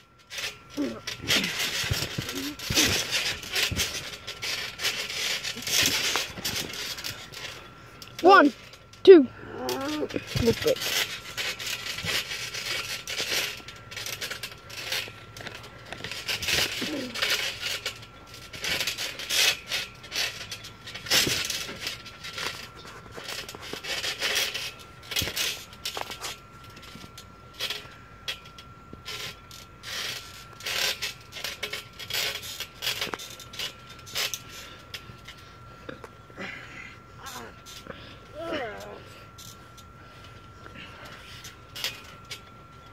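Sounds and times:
trampoline springs creaking: 0:00.0 - 0:42.9
bodies thudding on trampoline: 0:00.4 - 0:07.7, 0:09.8 - 0:27.1.

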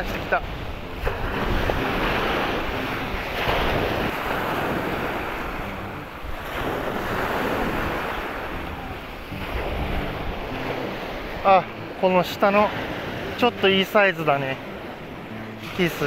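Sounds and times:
wind buffeting microphone: 0:00.0 - 0:12.0
waves washing on shore: 0:00.0 - 0:16.0.

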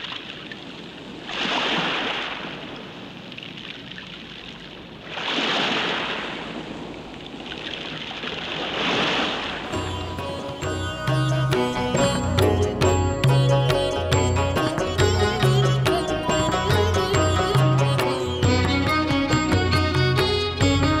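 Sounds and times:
sea waves breaking: 0:00.0 - 0:10.7.

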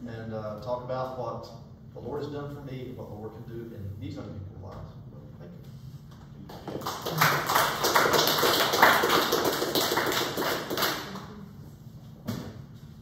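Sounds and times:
audience applauding: 0:06.5 - 0:11.3.

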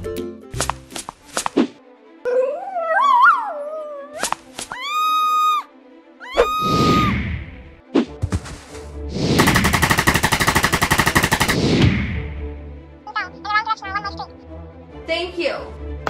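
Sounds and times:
background music: 0:00.0 - 0:16.0
wavering dog-like howl: 0:02.3 - 0:04.2
high held scream: 0:04.7 - 0:07.2.

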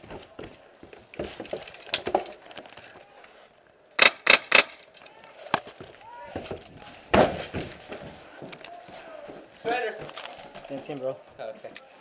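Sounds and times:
airsoft rifle shots: 0:04.0 - 0:04.9.

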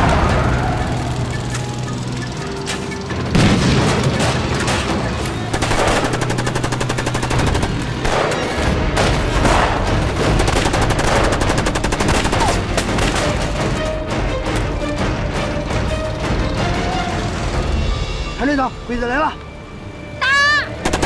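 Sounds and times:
motorcycle engines running: 0:00.0 - 0:17.9
machine-gun and rifle fire: 0:03.3 - 0:13.4.

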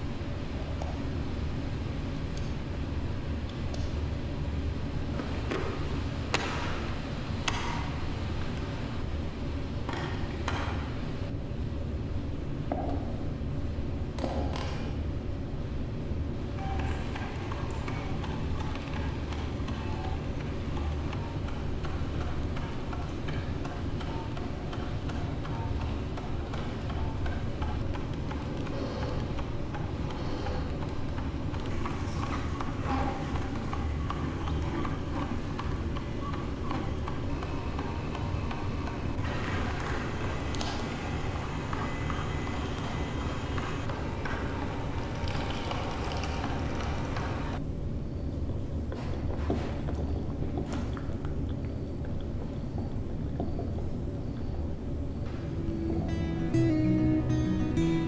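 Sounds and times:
juicer low hum: 0:16.6 - 0:47.6
juicer motor humming: 0:39.2 - 0:47.6.

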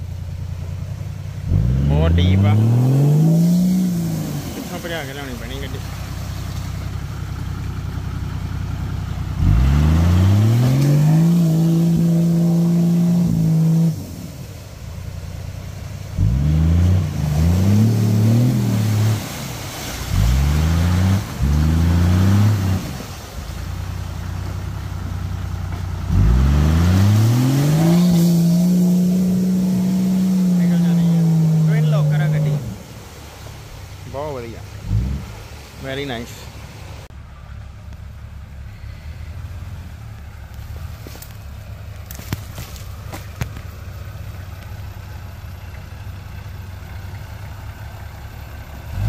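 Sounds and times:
turbo engine revving hard: 0:01.4 - 0:05.8, 0:09.3 - 0:14.3, 0:16.2 - 0:23.1, 0:26.0 - 0:32.9.

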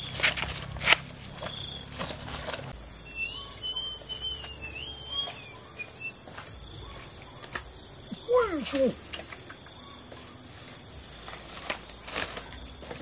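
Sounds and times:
insects chirring: 0:00.0 - 0:13.0
bird warbling call: 0:03.0 - 0:06.2.

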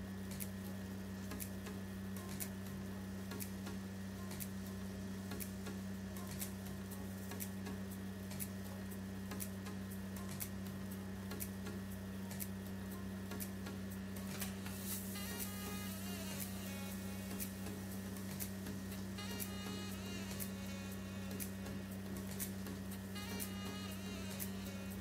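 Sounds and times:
steady low hum: 0:00.0 - 0:25.0
regular ticks: 0:00.2 - 0:02.6, 0:03.2 - 0:14.8.

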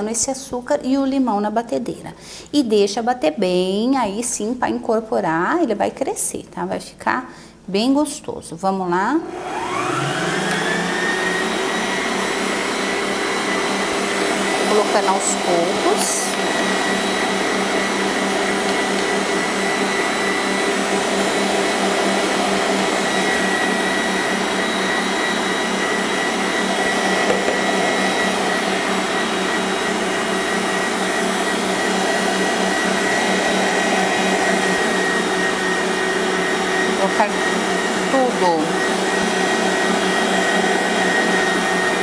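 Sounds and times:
stand mixer motor whine: 0:09.3 - 0:42.0.

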